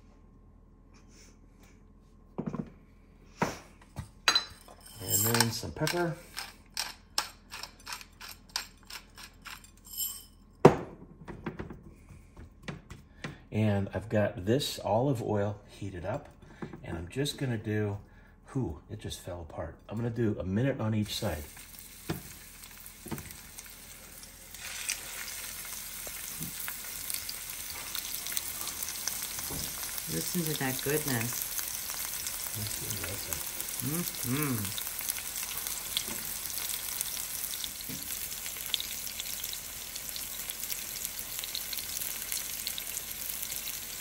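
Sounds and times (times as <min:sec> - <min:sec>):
meat sizzling in a frying pan: 0:21.0 - 0:44.0.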